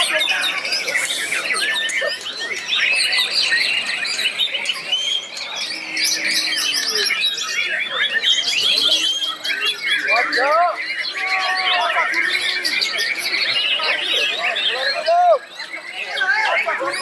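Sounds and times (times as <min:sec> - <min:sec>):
birds whistling and chirping: 0:00.0 - 0:17.0.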